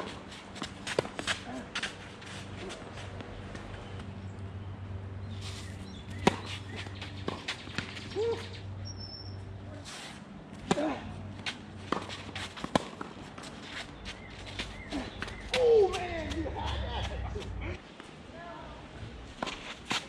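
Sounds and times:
footsteps on court: 0.0 - 4.2, 9.9 - 17.6
tennis ball hit by racquets: 6.1 - 8.5, 10.5 - 13.6.

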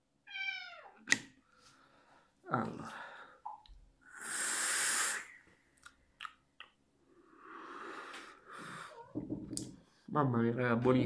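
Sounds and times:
vapour exhaled: 4.1 - 5.4
hiss of air through atomizer: 4.2 - 5.4.

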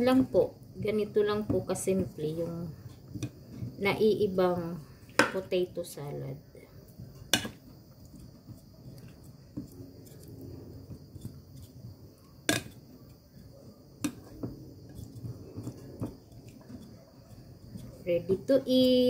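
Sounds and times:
wet mixing sounds: 6.6 - 19.0.

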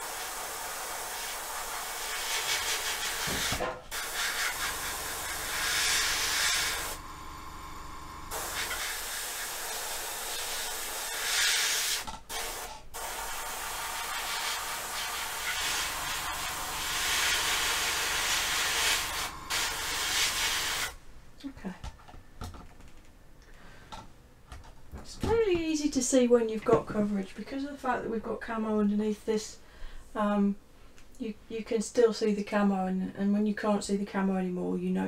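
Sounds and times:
airbrush spraying hiss: 0.0 - 7.0, 8.3 - 20.9.

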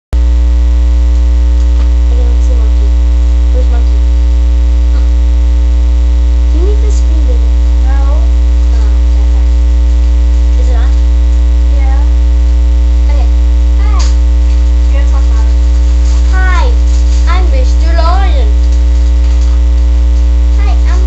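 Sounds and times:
electrical mains hum: 0.2 - 21.0.

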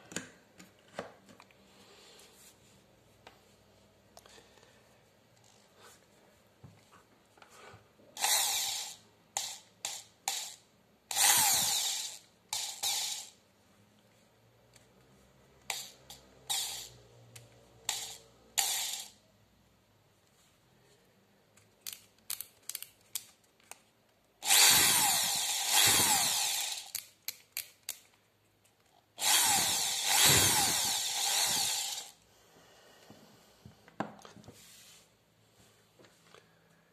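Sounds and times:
electric drill spinning: 8.2 - 13.4, 15.7 - 17.0, 17.9 - 19.2, 24.4 - 27.0, 29.2 - 32.2.

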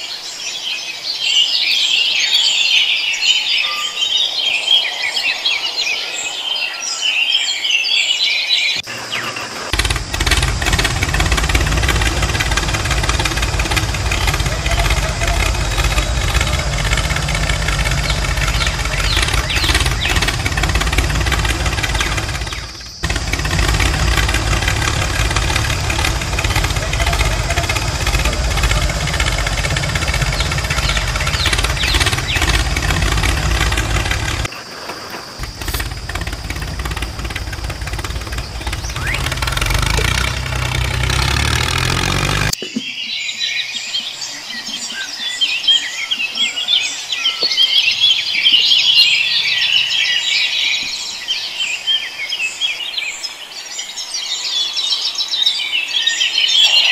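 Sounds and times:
birds chirping: 0.0 - 56.9
tractor engine running: 8.8 - 34.5, 35.4 - 42.6.

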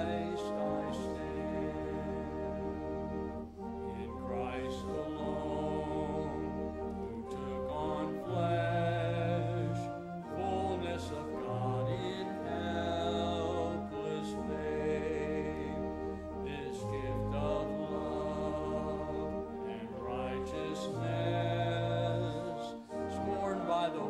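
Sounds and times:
church organ: 0.0 - 24.0
congregation singing a hymn: 0.0 - 24.0.

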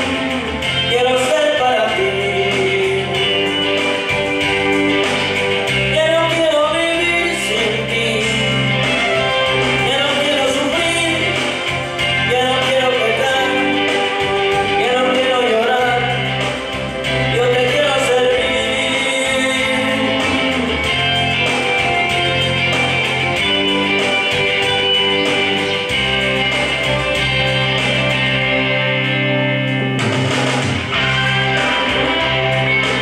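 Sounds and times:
man singing into a microphone: 0.0 - 4.1, 5.9 - 20.8
guitar accompaniment: 0.0 - 33.0.

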